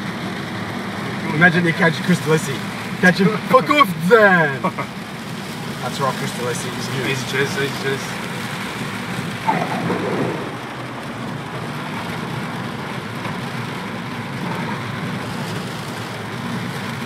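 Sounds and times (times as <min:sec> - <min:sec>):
rain drumming on car roof: 0:00.0 - 0:17.0
tyres hissing through water: 0:05.8 - 0:11.2.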